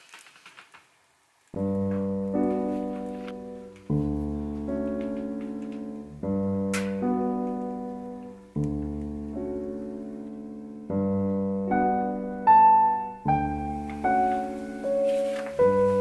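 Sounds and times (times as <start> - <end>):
slow gentle piano music: 1.6 - 16.0.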